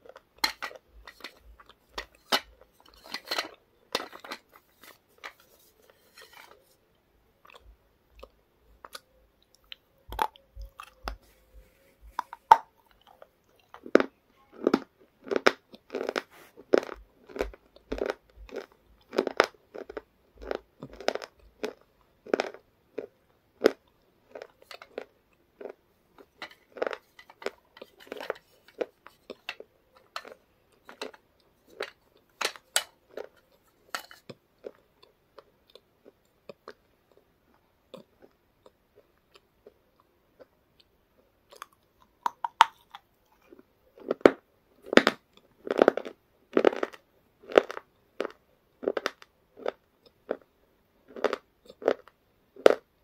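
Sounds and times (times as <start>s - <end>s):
crunching and chewing chips: 0.0s - 6.8s, 7.4s - 11.3s, 12.1s - 53.0s.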